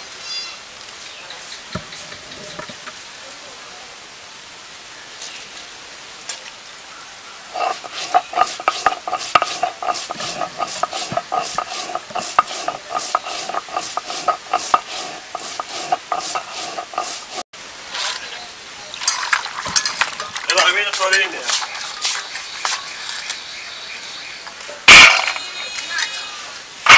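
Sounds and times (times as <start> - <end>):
water pouring into steel bowl: 7.5 - 17.4
stone grinding seeds: 7.5 - 17.5.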